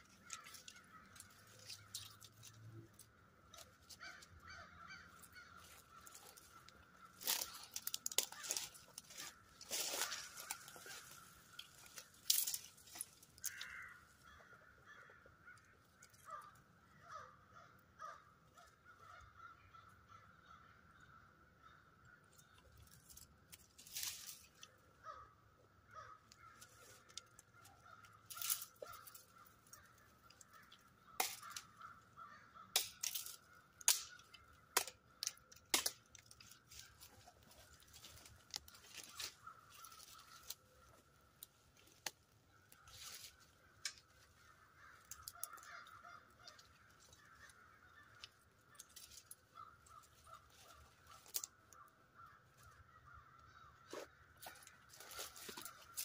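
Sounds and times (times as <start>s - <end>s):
sticks snapping: 6.0s - 13.8s, 26.3s - 32.0s, 32.6s - 49.4s, 51.1s - 51.8s.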